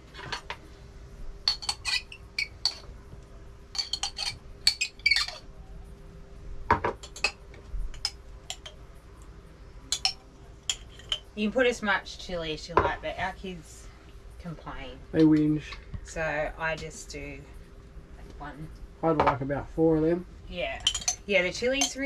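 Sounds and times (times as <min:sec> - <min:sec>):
faint steady hum: 0:00.0 - 0:22.0
teaspoon clinking on glass jar: 0:20.8 - 0:21.2.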